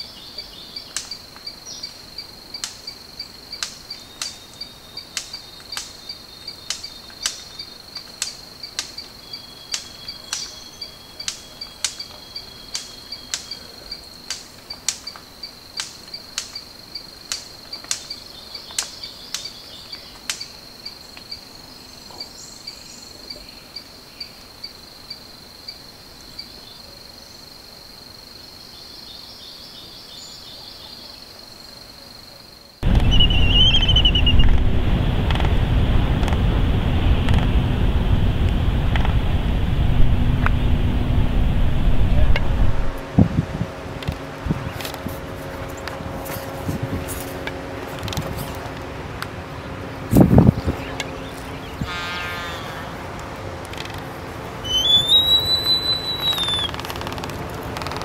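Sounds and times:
high pulsing insect trill: 0.0s - 36.4s, 37.1s - 58.0s
bird snapping clicks: 0.9s - 1.5s, 3.6s - 4.4s, 5.1s - 6.0s, 6.6s - 10.6s, 11.2s - 12.1s, 12.7s - 13.6s, 14.3s - 16.6s, 17.3s - 19.5s, 20.2s - 20.5s.

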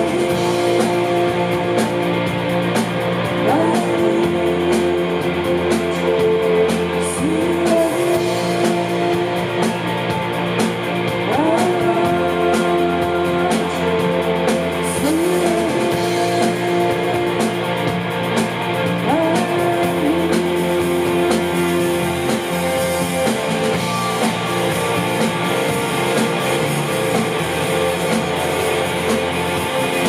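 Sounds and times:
drum kit with cymbal hits: 0.0s - 30.0s
electric guitars: 0.0s - 30.0s
woman singing: 3.4s - 9.8s, 11.2s - 17.5s, 19.0s - 22.1s.

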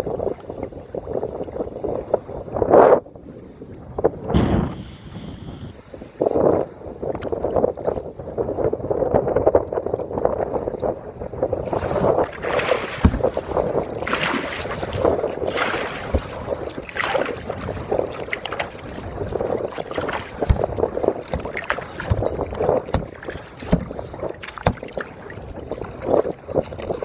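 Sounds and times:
paddle strokes splashing: 11.6s - 27.0s
sharp knocks: 13.0s - 13.3s, 20.4s - 23.9s, 24.6s - 24.9s.

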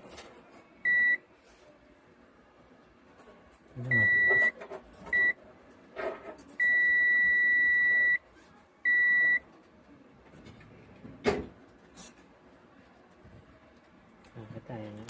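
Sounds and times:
multimeter continuity beeps: 0.9s - 1.2s, 3.9s - 5.4s, 6.6s - 8.2s, 8.9s - 9.4s.

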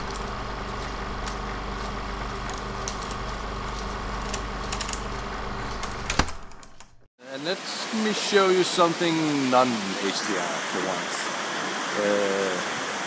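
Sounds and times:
film projector hum and hiss: 0.0s - 6.2s, 7.5s - 13.0s
crackling clicks: 0.0s - 7.1s.

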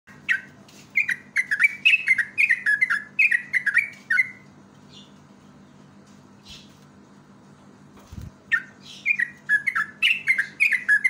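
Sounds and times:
bird whistling song: 0.1s - 5.2s, 8.5s - 11.0s.

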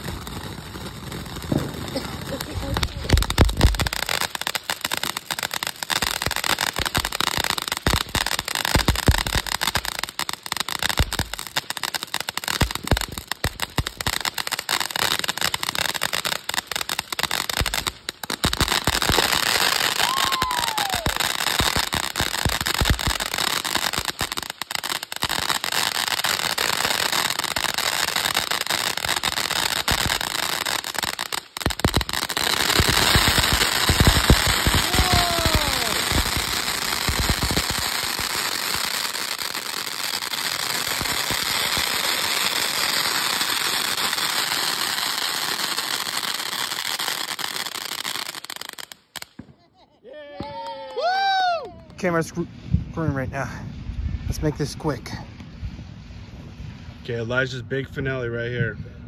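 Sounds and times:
fireworks fountain hissing: 0.0s - 49.6s, 50.4s - 58.2s
crackling pops: 1.4s - 44.4s, 48.3s - 49.6s
falling firework whistles: 17.3s - 49.6s.

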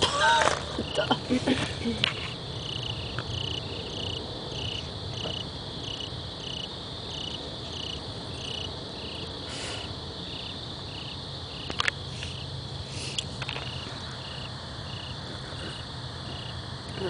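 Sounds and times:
cricket chirping: 0.0s - 17.0s
high drone of insects: 0.0s - 17.0s
noisy rustle: 11.4s - 17.0s.

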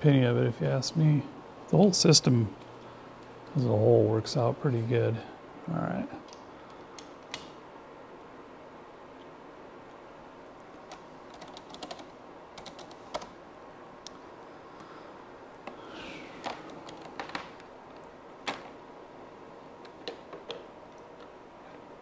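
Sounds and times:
keyboard typing: 10.9s - 13.3s
cable rustling: 15.6s - 18.8s.

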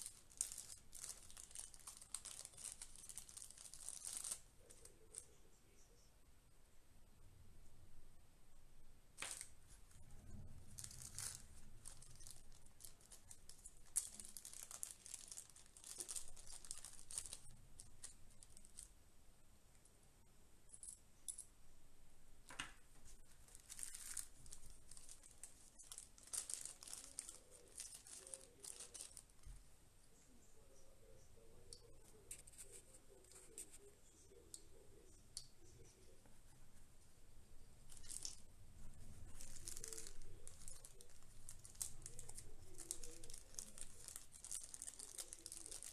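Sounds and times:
plastic bags crinkling: 0.0s - 5.2s, 9.2s - 9.5s, 10.7s - 18.9s, 23.3s - 29.4s, 37.9s - 38.5s, 39.2s - 45.9s.

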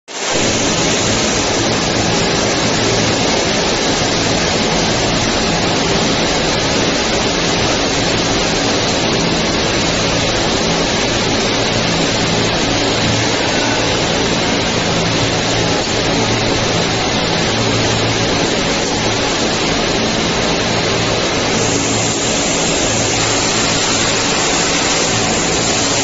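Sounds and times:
loud rushing machine noise: 0.1s - 26.0s
low machine hum: 0.3s - 26.0s.

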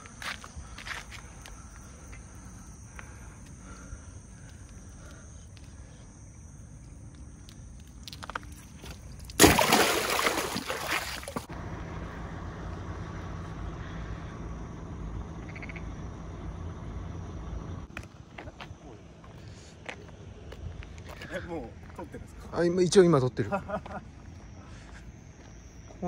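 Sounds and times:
steady low hum: 0.0s - 9.4s, 10.4s - 22.5s
faint insect drone: 0.0s - 26.0s
loud splash of water: 9.3s - 11.5s.

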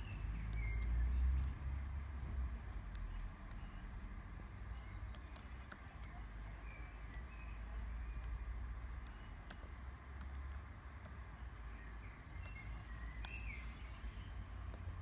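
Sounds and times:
sharp clicks: 0.0s - 2.0s, 2.7s - 3.7s, 4.6s - 7.3s, 8.2s - 11.7s, 12.3s - 13.6s
birds chirping: 0.0s - 15.0s.

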